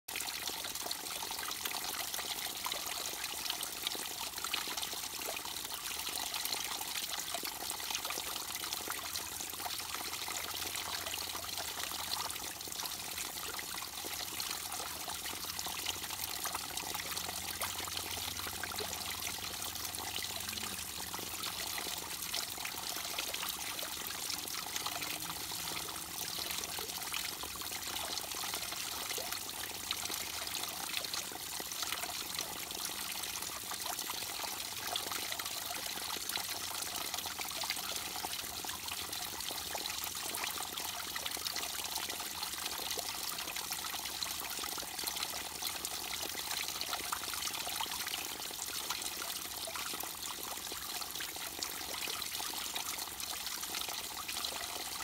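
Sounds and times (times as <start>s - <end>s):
water trickling into pool: 0.1s - 55.0s.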